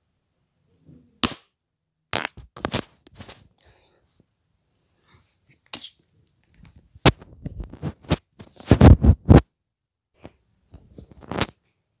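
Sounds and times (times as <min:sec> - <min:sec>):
microphone handling noise: 0:07.0 - 0:09.5.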